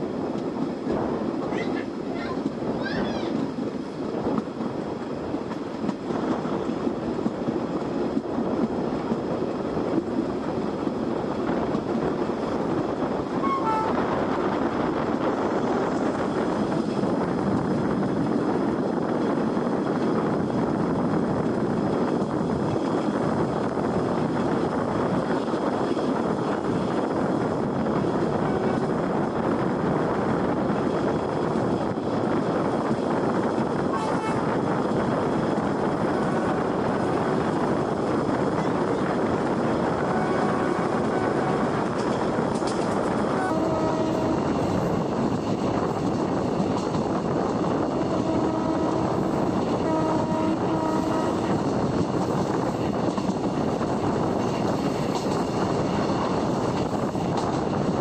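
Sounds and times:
train wheels rolling on rails: 0.0s - 58.0s.

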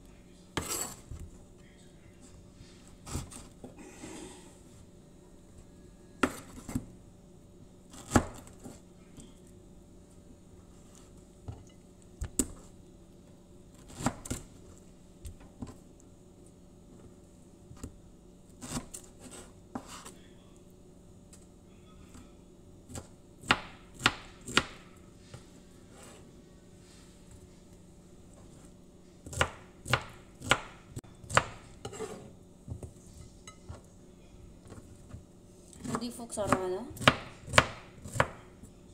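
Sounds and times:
knife chopping pineapple: 7.9s - 8.8s, 13.7s - 14.5s, 22.9s - 25.0s, 28.5s - 32.2s, 35.8s - 38.6s.

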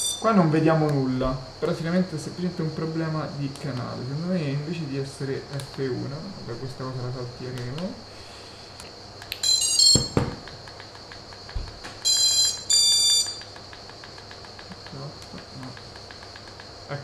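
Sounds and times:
motor startup beeps: 9.4s - 10.4s, 12.0s - 13.4s
knock: 9.9s - 10.5s.

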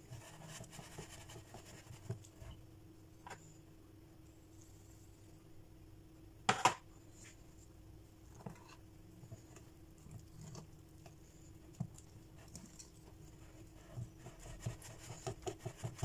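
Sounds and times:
whisk stirring batter in bowl: 13.6s - 16.0s.

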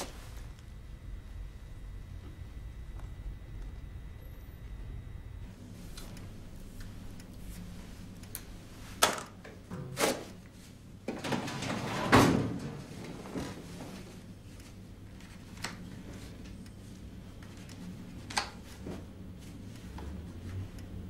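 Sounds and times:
drawer sliding shut with a thud: 11.4s - 12.8s.

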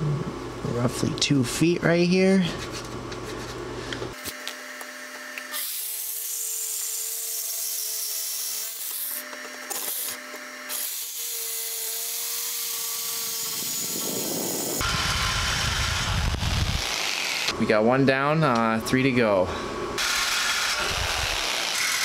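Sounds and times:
jigsaw motor running: 4.3s - 17.6s, 20.0s - 22.0s.

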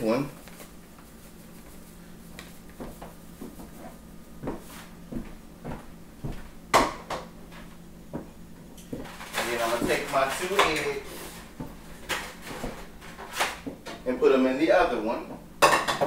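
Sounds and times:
plastic bowls knocking on counter: 15.6s - 16.0s.

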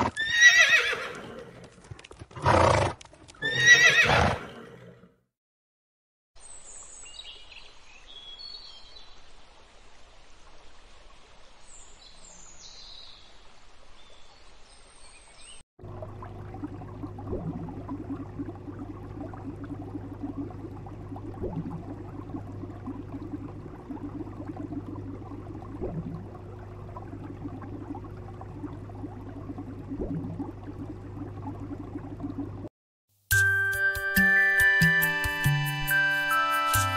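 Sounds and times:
faint outdoor hiss: 6.4s - 15.6s
aquarium tank hum: 15.8s - 32.7s.

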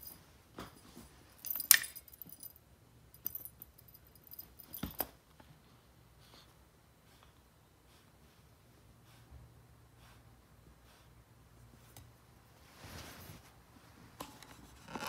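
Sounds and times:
light metallic jingling: 0.0s - 5.1s.

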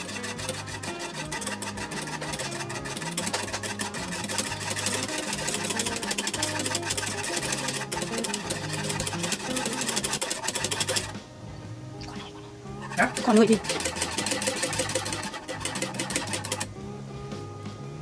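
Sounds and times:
whisk beating in metal saucepan: 0.0s - 11.2s, 12.8s - 16.7s.

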